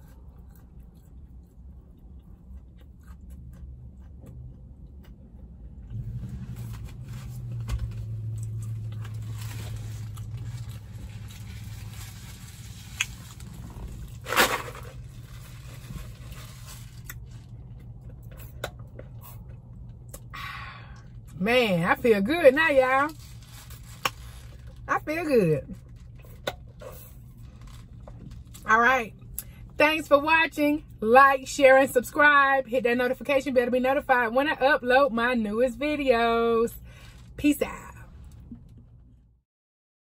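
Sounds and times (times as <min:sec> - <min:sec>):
quiet eating noises: 0:00.0 - 0:05.7
low steady hum: 0:00.0 - 0:39.4.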